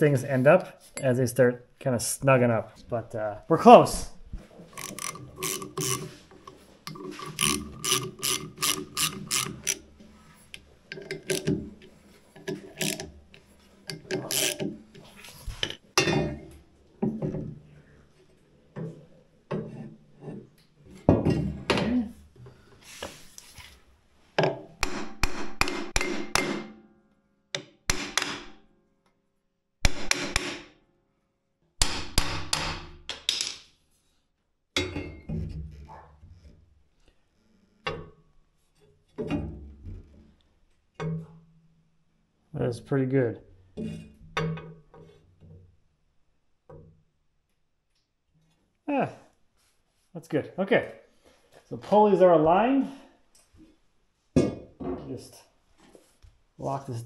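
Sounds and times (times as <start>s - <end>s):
ratchet wrench clicking: 4.8s - 6.1s, 6.9s - 9.8s, 12.8s - 13.0s, 13.9s - 14.6s.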